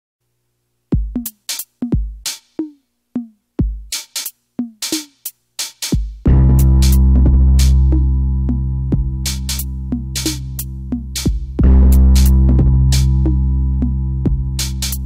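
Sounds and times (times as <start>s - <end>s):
snare and hi-hat hits: 0.9s - 8.1s, 9.0s - 13.4s, 14.3s - 15.0s
deep kick drums: 1.0s - 1.3s, 3.6s - 3.9s, 6.0s - 15.0s.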